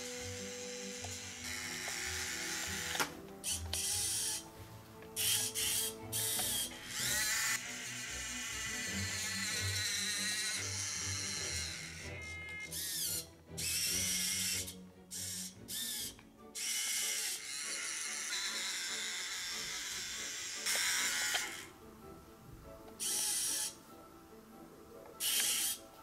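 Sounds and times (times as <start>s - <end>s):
small electric motors whirring: 0.0s - 21.8s, 23.0s - 23.8s, 25.2s - 26.0s
background music: 0.0s - 26.0s.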